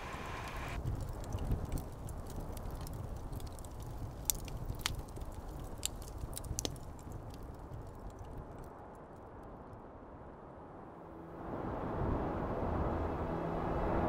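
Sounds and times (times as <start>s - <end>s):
wood fire pops and snaps: 0.0s - 8.9s
steady low rush: 9.9s - 14.0s.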